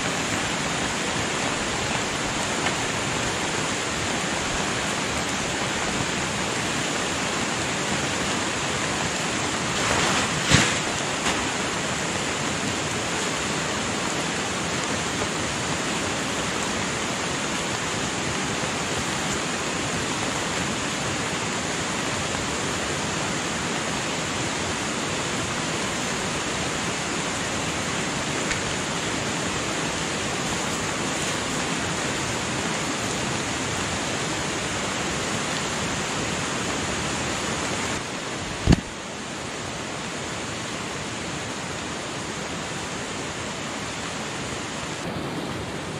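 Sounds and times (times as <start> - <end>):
rushing water: 0.0 - 45.9
brief rustle: 9.8 - 11.5
sharp knock: 38.6 - 38.9.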